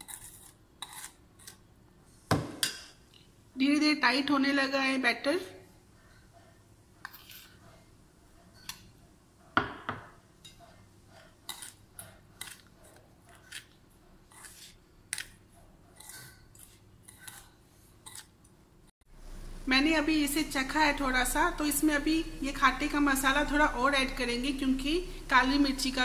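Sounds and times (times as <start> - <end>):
spoon scraping steel bowl: 0.0 - 1.6, 7.0 - 7.6, 10.4 - 12.7, 13.3 - 15.3, 15.9 - 18.3.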